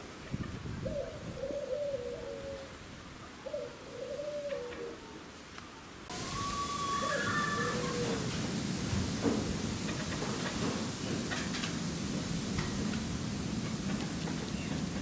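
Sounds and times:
background hiss: 0:00.0 - 0:15.0
pigeon cooing: 0:00.8 - 0:02.7, 0:03.4 - 0:05.2, 0:06.3 - 0:08.2.

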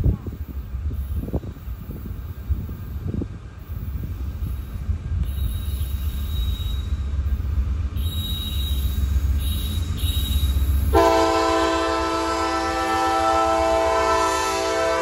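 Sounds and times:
locomotive air horn: 0:08.0 - 0:15.0.

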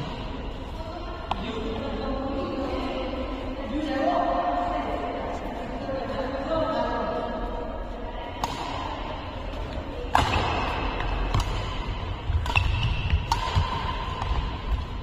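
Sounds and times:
badminton racket hitting shuttlecock: 0:08.4 - 0:15.0.

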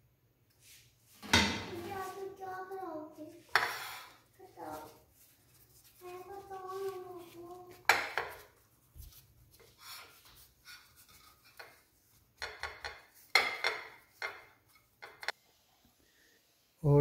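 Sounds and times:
hands rolling tortilla wrap: 0:02.0 - 0:15.4
plate scraping and knocking on counter: 0:03.5 - 0:04.1.

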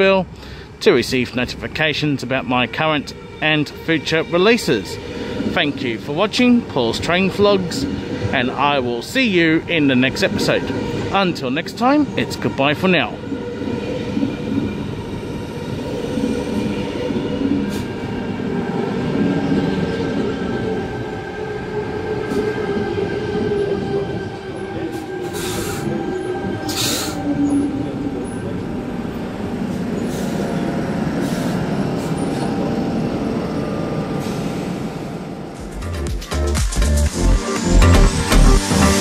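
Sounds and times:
wheels rumbling and squealing on rail: 0:00.0 - 0:35.9
air hissing: 0:26.6 - 0:27.3.

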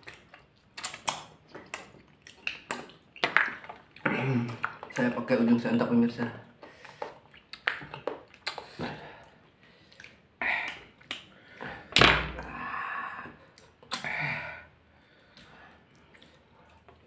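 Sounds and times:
slurping and chewing noodles: 0:06.7 - 0:12.5.

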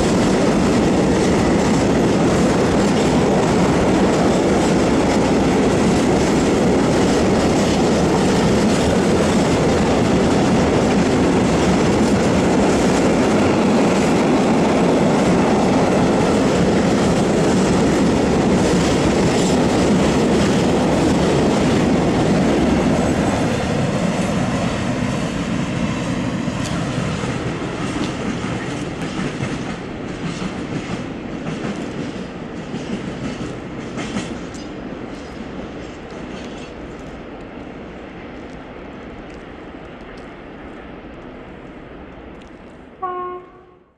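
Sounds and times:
train wheels clacking over rail joints: 0:00.0 - 0:24.2, 0:26.6 - 0:37.2.

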